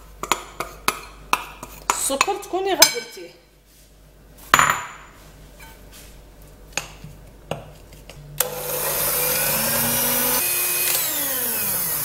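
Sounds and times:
electric hand mixer whining: 8.4s - 12.0s.

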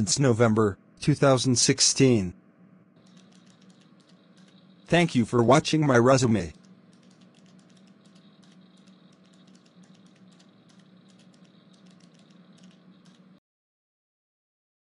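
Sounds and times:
low room hum: 0.0s - 13.4s
keyboard typing: 3.0s - 5.1s, 6.3s - 13.4s.

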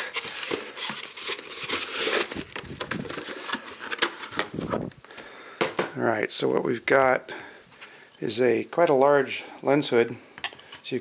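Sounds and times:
cardboard and plastic rustling: 0.0s - 5.0s.

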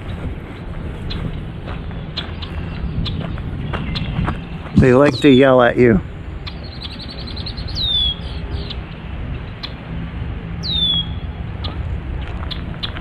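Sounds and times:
low steady rumble: 0.0s - 13.0s
bird alarm calls: 2.0s - 5.7s, 6.4s - 9.9s, 10.6s - 11.8s
bird down-slurred whistles: 6.7s - 8.8s, 10.6s - 11.2s.

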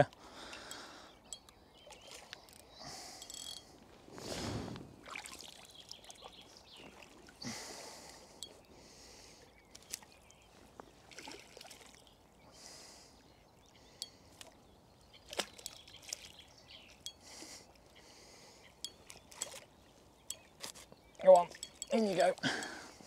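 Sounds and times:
fish splashing at the surface: 11.0s - 12.1s.

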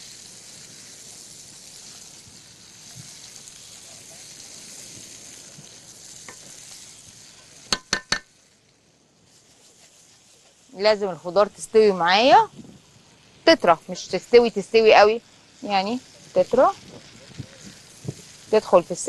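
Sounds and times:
food sizzling in a frying pan: 0.0s - 19.0s
spatula stirring: 0.8s - 8.5s, 9.2s - 11.9s.

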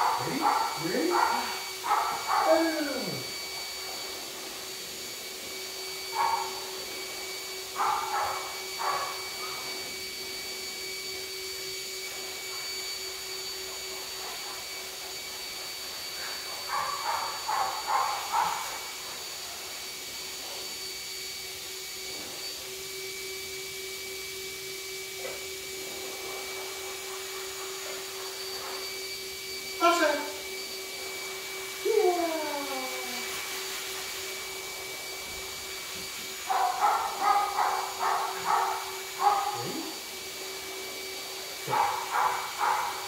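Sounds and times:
appliance motor hum: 20.8s - 43.0s.

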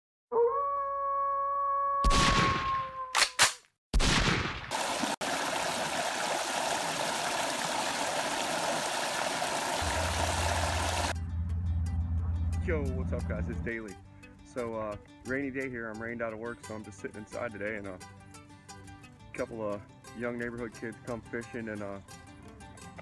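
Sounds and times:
sharp cracks: 2.0s - 4.8s
waterfall spilling over rocks: 4.7s - 11.2s.

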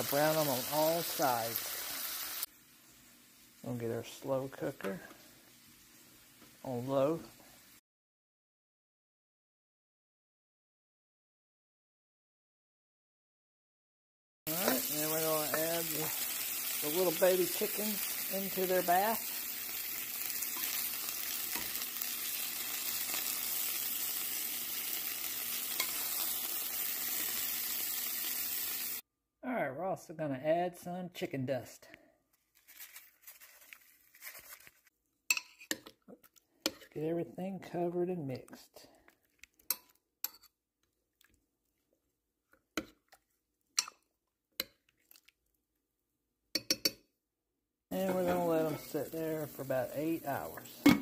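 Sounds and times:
oil sizzling in a frying pan: 0.0s - 7.8s, 14.5s - 29.0s, 47.9s - 51.0s
spoon clinking against ceramic: 35.3s - 35.9s, 43.8s - 44.0s, 46.6s - 47.0s.

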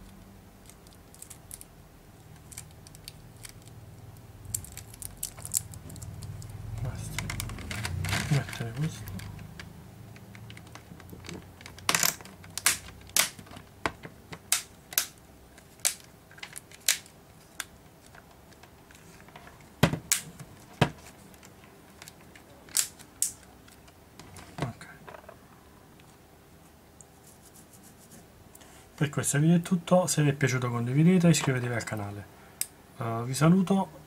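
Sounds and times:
plastic clips snapping: 4.5s - 15.2s, 19.8s - 20.4s, 21.4s - 24.0s.

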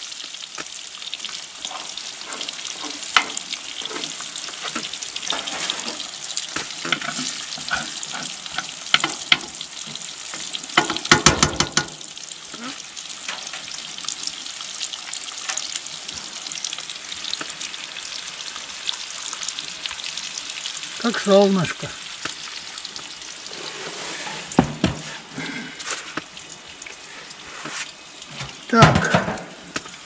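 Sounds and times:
food sizzling in a frying pan: 0.0s - 30.0s
metal spoon scraping a pan: 1.6s - 6.2s, 6.8s - 9.2s, 23.4s - 24.6s.

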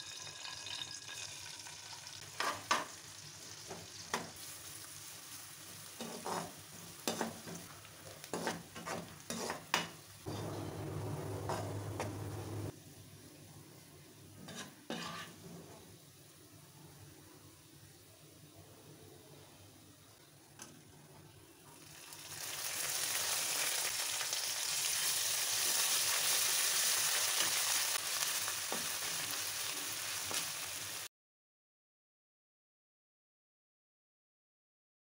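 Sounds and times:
onions sizzling in hot oil: 0.0s - 10.5s, 13.8s - 15.5s, 21.4s - 31.1s
metal spatula scraping a wok: 6.0s - 12.7s, 14.4s - 15.9s
low hum: 10.3s - 12.7s.

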